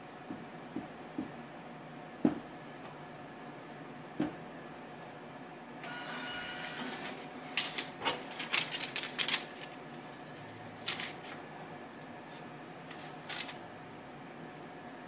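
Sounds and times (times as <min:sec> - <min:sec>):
receipt printer whining: 0:05.8 - 0:11.3
paper rustling: 0:07.0 - 0:11.4, 0:12.3 - 0:13.6.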